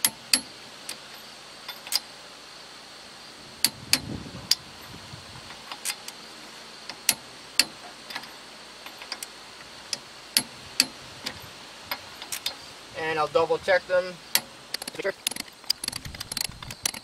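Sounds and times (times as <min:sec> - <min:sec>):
torque wrench clicking: 0:06.9 - 0:08.3, 0:09.9 - 0:12.6, 0:14.3 - 0:17.0.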